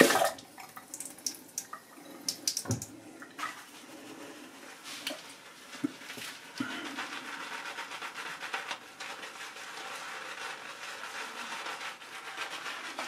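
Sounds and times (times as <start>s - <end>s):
shaving brush scrubbing lather: 3.6s - 13.0s.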